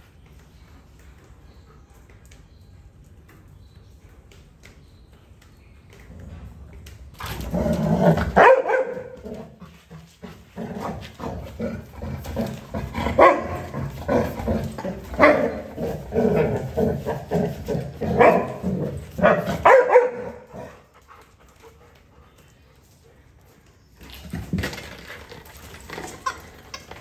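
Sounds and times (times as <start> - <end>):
dog barking: 8.4 - 9.2, 13.2 - 13.6, 18.1 - 18.6, 19.2 - 20.5.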